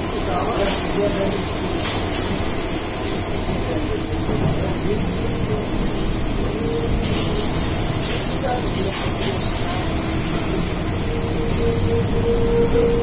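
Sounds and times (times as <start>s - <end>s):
rail vehicle rumble and hiss: 0.0s - 13.0s.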